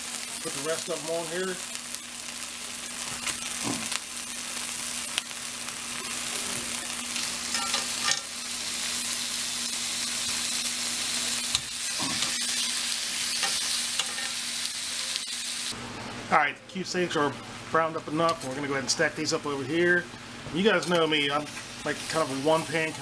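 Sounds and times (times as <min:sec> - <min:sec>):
steaks sizzling in oil: 0:00.0 - 0:15.8, 0:20.8 - 0:23.0.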